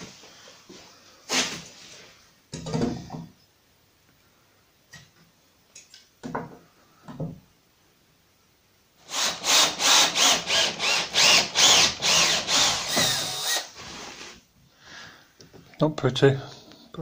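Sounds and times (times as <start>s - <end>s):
cordless drill boring into timber: 9.1s - 14.3s.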